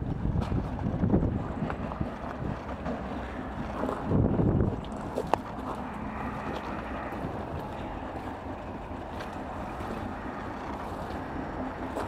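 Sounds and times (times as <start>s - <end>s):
wind buffeting microphone: 0.0s - 12.0s
footsteps on gravel: 4.7s - 8.4s.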